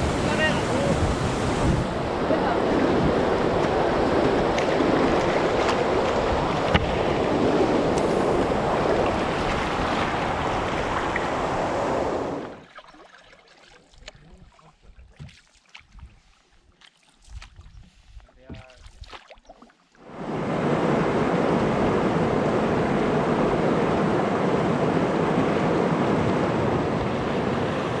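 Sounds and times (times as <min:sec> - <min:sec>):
rushing white water: 0:00.0 - 0:13.0
paddle splashes: 0:00.1 - 0:20.1.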